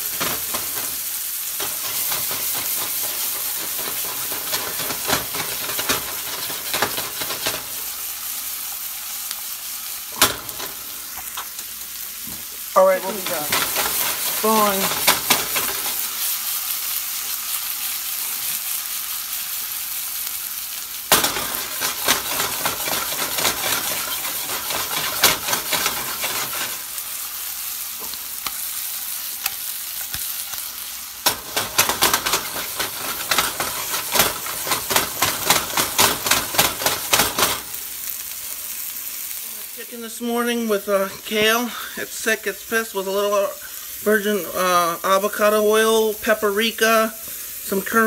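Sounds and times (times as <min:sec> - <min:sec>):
meat sizzling in a skillet: 0:00.0 - 0:48.0.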